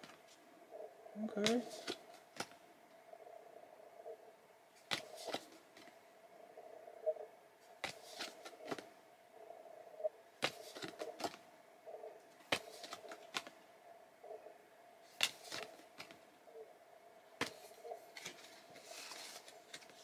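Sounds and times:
faint hum: 0:00.0 - 0:20.0
cards flicking and snapping: 0:04.9 - 0:05.4, 0:07.8 - 0:08.8, 0:12.5 - 0:13.5, 0:15.2 - 0:16.2.

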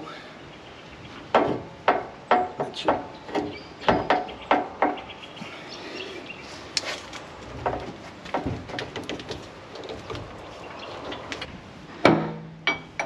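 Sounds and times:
metal clanks and knocks: 0:01.3 - 0:05.0, 0:07.4 - 0:10.4, 0:11.1 - 0:13.0.

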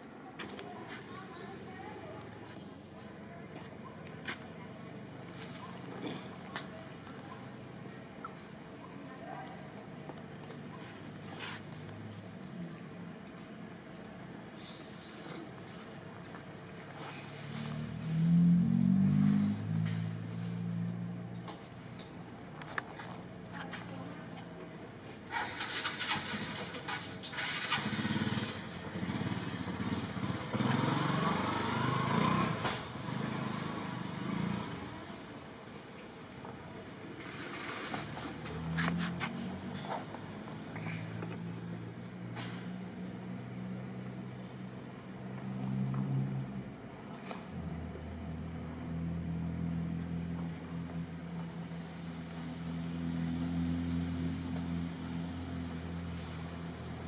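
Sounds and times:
engine humming steadily: 0:00.0 - 0:57.0
motorcycle engine revving: 0:14.6 - 0:22.1, 0:25.3 - 0:35.1, 0:37.2 - 0:44.3.

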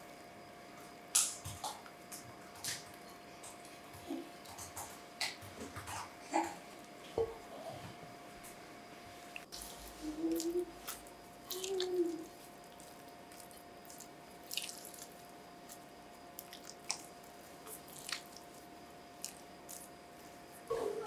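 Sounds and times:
wet batter squelches: 0:09.0 - 0:21.0.

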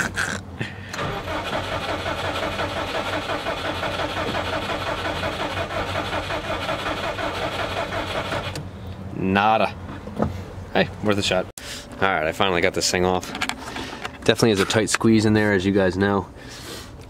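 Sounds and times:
car engine cranking by starter: 0:00.9 - 0:08.7.

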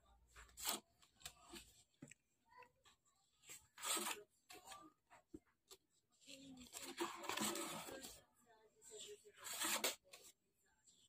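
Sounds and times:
paper pages turning: 0:03.4 - 0:04.9, 0:06.2 - 0:08.2, 0:09.1 - 0:10.4.

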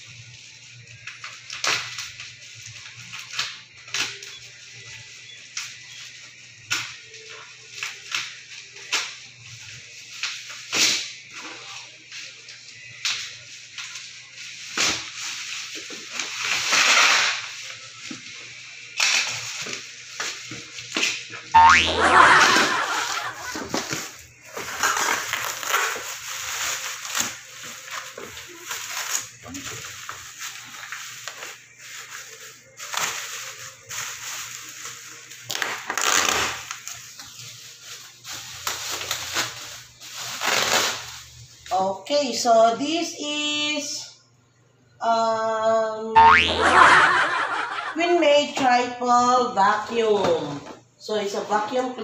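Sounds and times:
bubble wrap crinkling: 0:23.2 - 0:41.6.

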